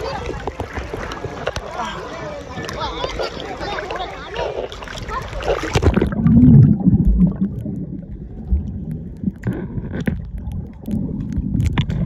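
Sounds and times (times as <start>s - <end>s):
small underwater clicks: 0.0s - 1.8s, 2.4s - 12.0s
muffled underwater water gurgling: 0.0s - 12.0s.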